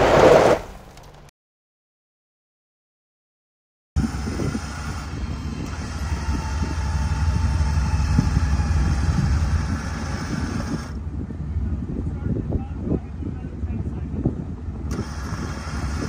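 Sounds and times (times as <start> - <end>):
vehicle engines rumbling: 4.0 - 16.0.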